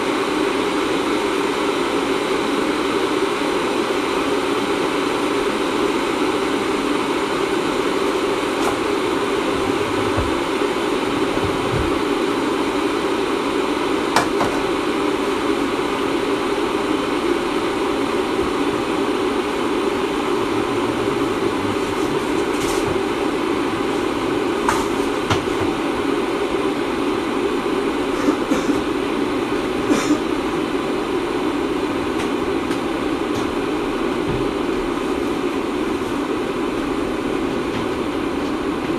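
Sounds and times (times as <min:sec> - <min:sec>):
loud mechanical drone: 0:00.0 - 0:38.7.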